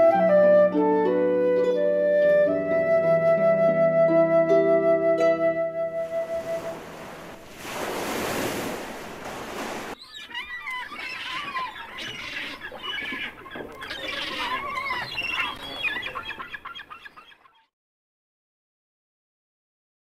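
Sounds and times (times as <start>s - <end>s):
surf-like rushing noise: 6.0s - 10.0s
many birds warbling: 10.0s - 17.7s.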